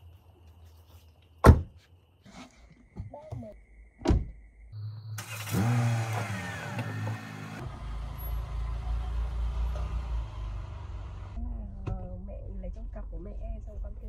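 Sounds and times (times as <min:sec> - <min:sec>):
car engine starting and idling: 0:05.2 - 0:13.0.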